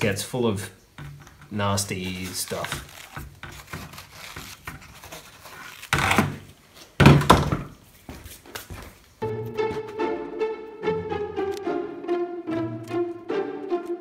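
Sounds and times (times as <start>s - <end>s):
string music: 9.2s - 14.0s.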